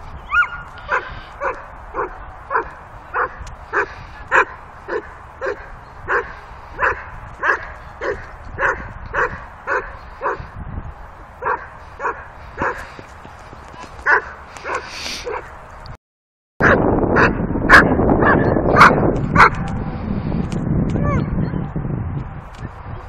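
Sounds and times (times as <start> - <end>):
dog barking: 0.3 - 10.4, 11.4 - 12.9, 14.0 - 15.5, 16.6 - 19.8.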